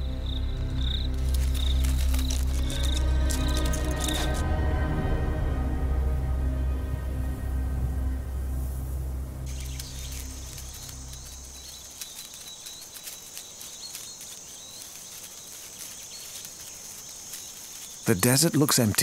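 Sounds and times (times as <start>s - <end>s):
low background music: 0.0s - 12.0s
insects chirring: 0.0s - 19.0s
short high chirps and ticks: 9.5s - 18.1s.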